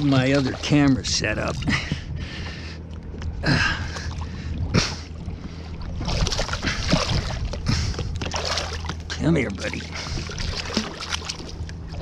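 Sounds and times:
steady low hum: 0.0s - 12.0s
fish splashing at water surface: 8.2s - 9.0s, 10.0s - 12.0s.

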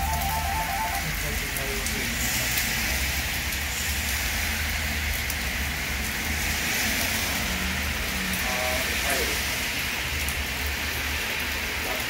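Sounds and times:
heavy rain on road: 0.0s - 12.0s
car driving past on wet road: 6.1s - 9.5s.

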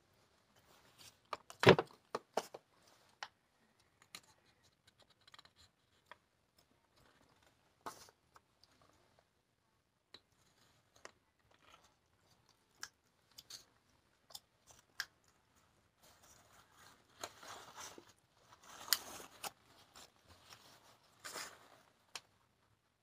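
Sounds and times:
paper rustling and crinkling: 16.0s - 22.2s.

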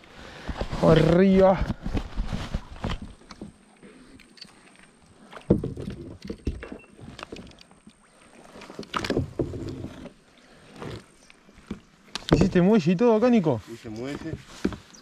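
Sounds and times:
paddle splashing in water: 2.2s - 12.8s
paddle knocking against hull: 5.4s - 6.8s, 8.6s - 10.1s, 11.6s - 12.8s, 14.0s - 14.9s.

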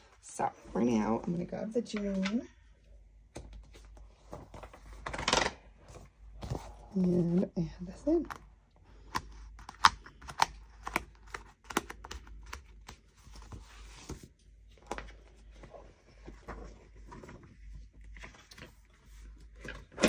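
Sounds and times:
paper rustling: 3.4s - 7.4s
paper pages clicking onto discs: 9.0s - 14.1s.

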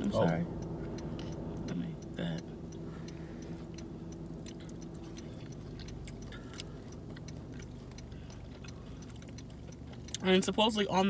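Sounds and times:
low hum in car cabin: 0.0s - 11.0s
chewing: 3.0s - 10.2s.

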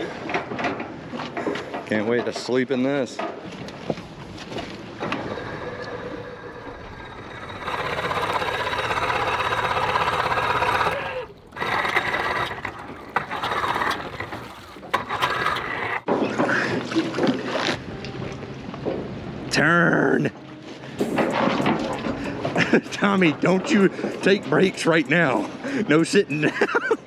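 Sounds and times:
outboard motor cranking: 4.0s - 17.7s.

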